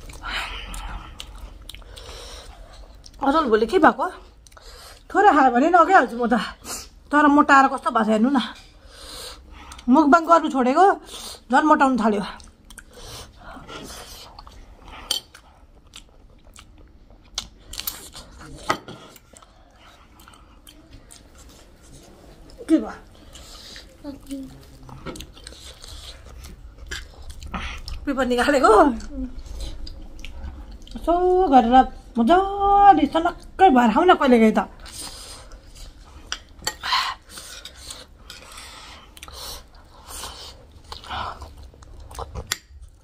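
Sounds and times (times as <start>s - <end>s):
chewing and crunching: 0.0s - 3.2s, 12.2s - 31.1s, 34.8s - 43.0s.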